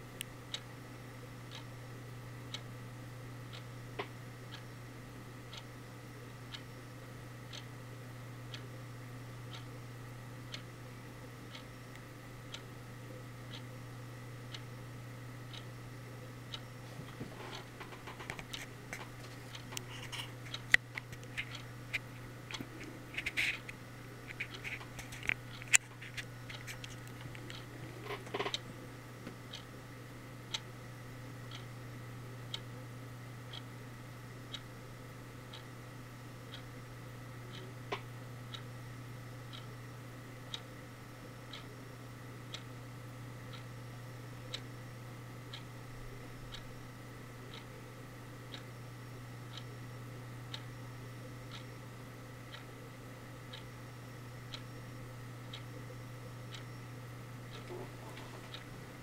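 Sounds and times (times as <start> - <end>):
steady low hum: 0.0 - 59.0
sharp clicks and scratches: 17.0 - 28.6.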